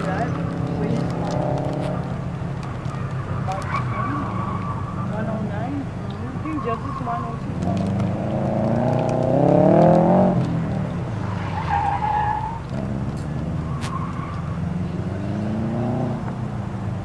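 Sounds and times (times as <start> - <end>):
tyre squeal: 3.3 - 5.4, 11.3 - 12.8
car engine revving hard: 7.6 - 10.8, 14.5 - 16.4.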